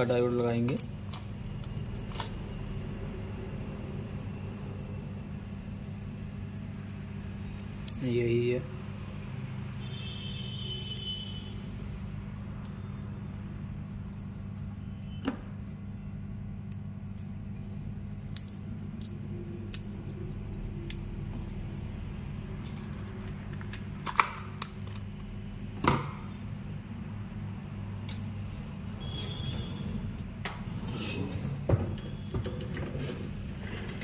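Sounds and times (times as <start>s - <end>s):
steady low hum: 0.0s - 34.0s
scissors snipping: 18.2s - 21.2s.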